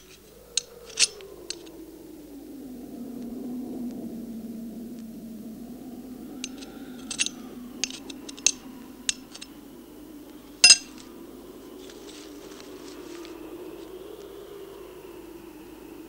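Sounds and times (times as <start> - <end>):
steady low hum: 0.0 - 16.0
metal tin clinking: 10.6 - 10.9.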